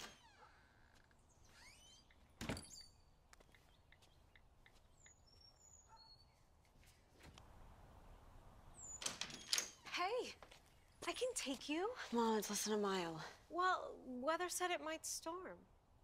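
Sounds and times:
birds chirping faintly: 0.1 - 7.1.

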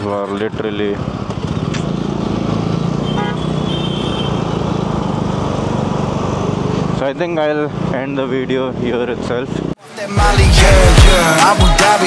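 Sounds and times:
motorcycle engine running: 0.5 - 7.0
vehicle horn toot: 3.0 - 4.5.

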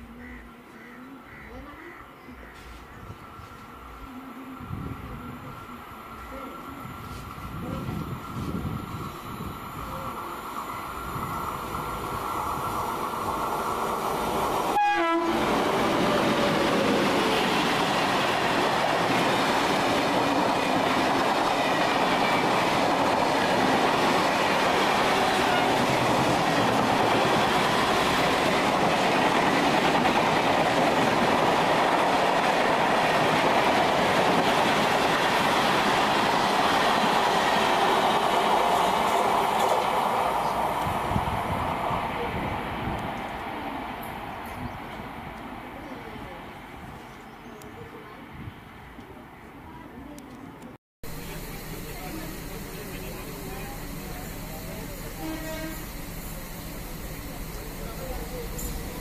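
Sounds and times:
train passing at speed: 2.3 - 49.8, 51.0 - 59.0
train horn: 14.7 - 16.4, 24.8 - 28.0, 55.1 - 56.0.

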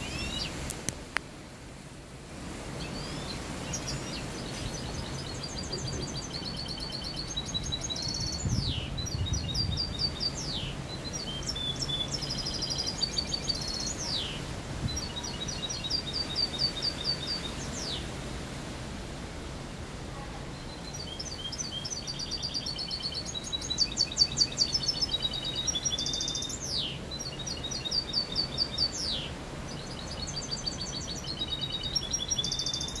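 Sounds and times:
low background noise: 0.0 - 33.0
bird singing trills: 2.8 - 18.0, 20.6 - 33.0.

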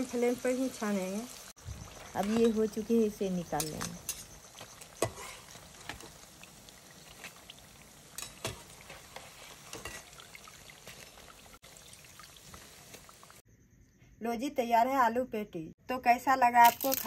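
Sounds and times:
deep-frying sizzle: 0.0 - 13.4
metal utensils clinking on pan: 2.2 - 6.2, 8.1 - 10.2.

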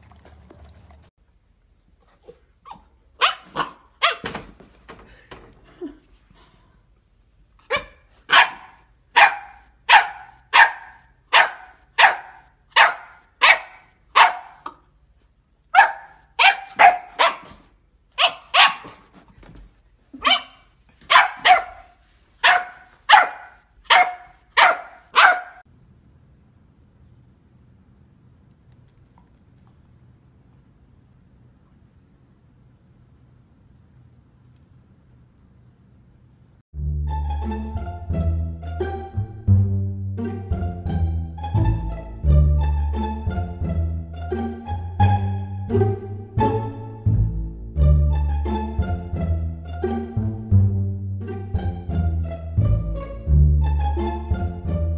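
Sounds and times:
puppy barking: 2.6 - 4.3, 7.6 - 14.9, 15.7 - 19.1, 20.2 - 25.6.

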